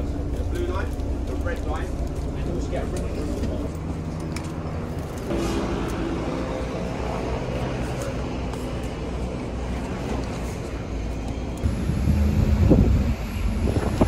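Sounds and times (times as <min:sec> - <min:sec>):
bus engine rumble: 0:00.0 - 0:14.0
wind buffeting microphone: 0:11.6 - 0:14.0.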